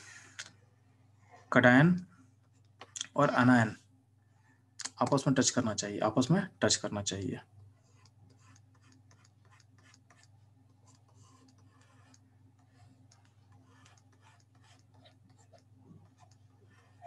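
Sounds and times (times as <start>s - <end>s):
electrical hum: 0.0s - 17.0s
stylus scratching: 7.6s - 17.0s.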